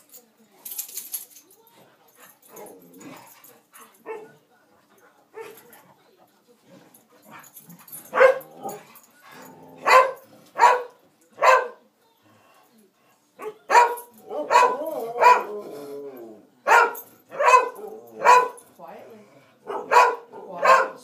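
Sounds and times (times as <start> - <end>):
dog barking: 4.0 - 4.3, 8.1 - 8.8, 9.8 - 11.8, 13.4 - 15.5, 16.7 - 18.6, 19.6 - 21.0.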